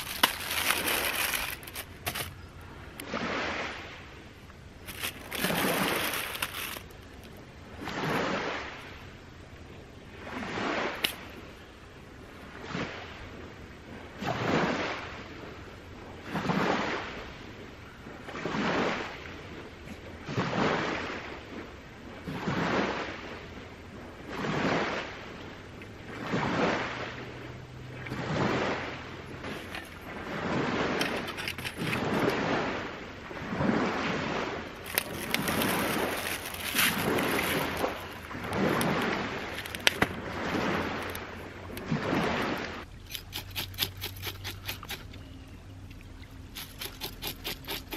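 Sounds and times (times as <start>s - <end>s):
small waves washing onto shore: 0.0s - 4.2s, 4.8s - 9.0s, 24.2s - 45.0s.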